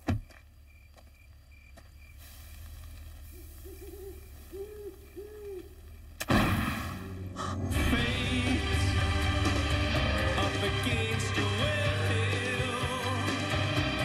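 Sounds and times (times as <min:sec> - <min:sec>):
owl hooting: 0:03.2 - 0:06.2
sudden loud bang: 0:06.2 - 0:07.2.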